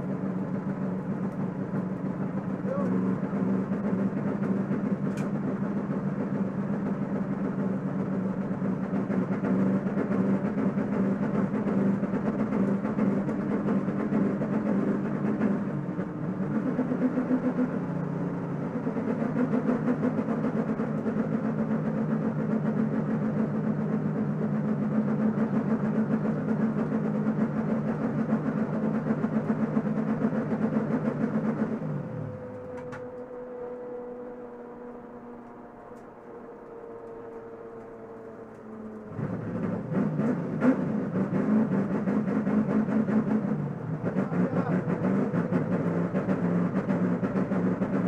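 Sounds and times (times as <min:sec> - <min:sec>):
coasting car whine: 0:00.0 - 0:48.0
race car engine running hard: 0:00.0 - 0:48.0.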